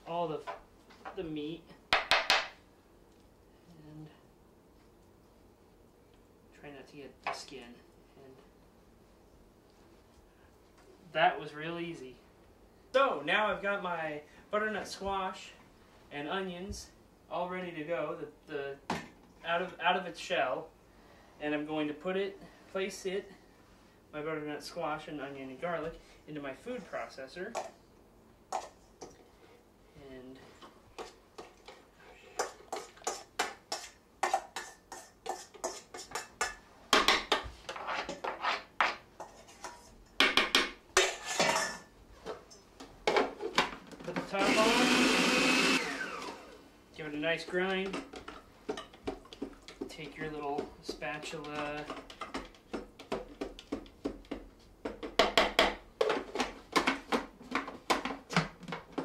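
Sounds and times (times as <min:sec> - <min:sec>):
metal spoon scraping bowl: 0:32.4 - 0:36.5.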